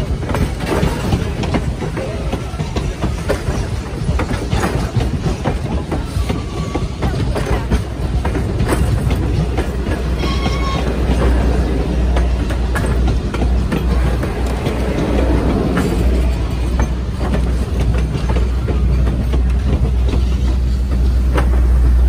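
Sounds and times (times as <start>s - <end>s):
train rumble: 0.0s - 22.0s
train wheels clicking over rail joints: 0.0s - 22.0s.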